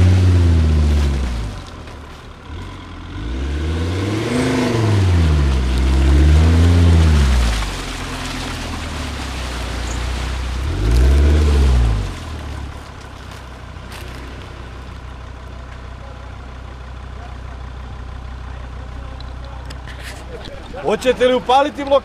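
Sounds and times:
car engine revving: 0.0s - 15.4s.

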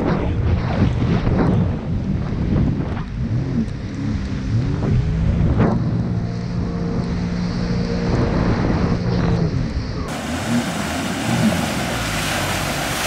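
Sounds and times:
wind on microphone: 0.0s - 13.0s
rushing water of wake: 2.2s - 13.0s
jet ski engine running: 2.8s - 13.0s.

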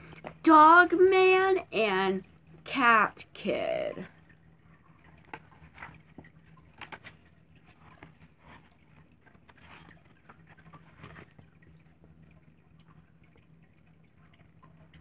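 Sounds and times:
book rustling and tapping: 5.0s - 12.1s.

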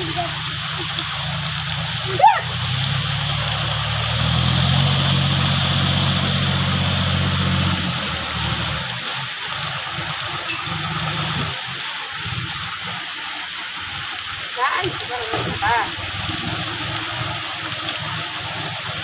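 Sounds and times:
tractor diesel engine running: 0.0s - 11.5s
heavy rain hiss: 0.0s - 19.0s.

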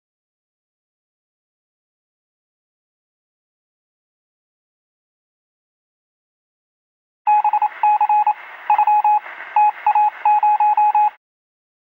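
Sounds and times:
morse code beeps: 7.3s - 11.2s
static hiss: 7.6s - 10.4s.

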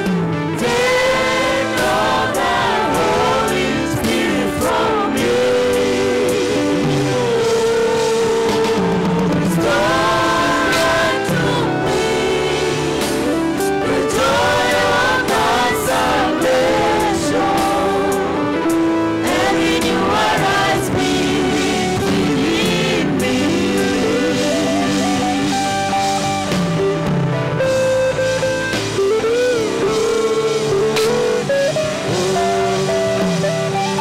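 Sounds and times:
choir singing gospel song: 0.0s - 27.0s
instrumental backing: 0.0s - 34.0s
lead voice with vibrato: 0.6s - 26.5s.

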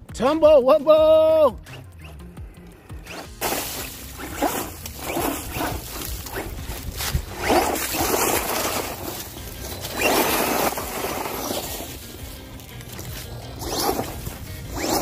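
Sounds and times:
rc truck electric motor revving: 1.6s - 15.0s
rough hissing noise: 3.1s - 15.0s.

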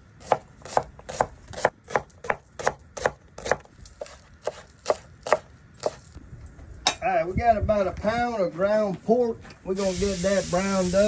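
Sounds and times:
knife chopping on plastic board: 0.2s - 6.0s.

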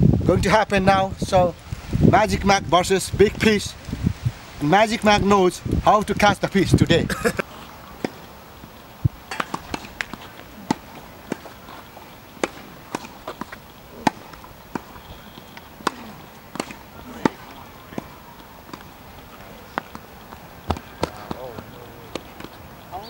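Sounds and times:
tennis ball pops: 7.3s - 8.3s, 9.0s - 22.6s.

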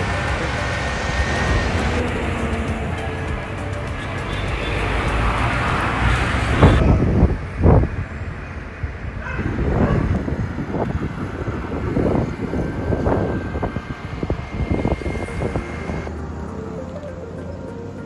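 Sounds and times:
low road rumble: 0.0s - 18.0s
wind buffeting microphone: 5.7s - 16.1s.

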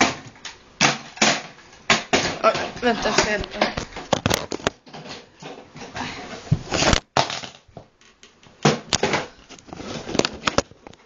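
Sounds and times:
packaging rustling and crackling: 9.1s - 11.0s.

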